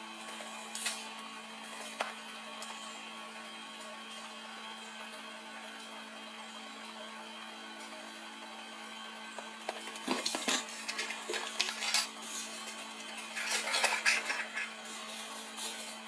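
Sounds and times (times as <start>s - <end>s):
cardboard scraping rustles: 10.1s - 15.8s.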